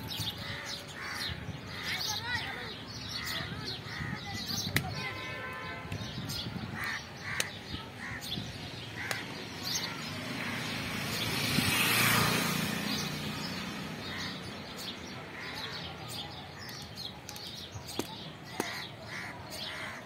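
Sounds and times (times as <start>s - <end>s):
crows cawing: 0.4s - 2.2s, 6.8s - 8.3s, 18.6s - 20.0s
other bird calls: 12.9s - 20.0s.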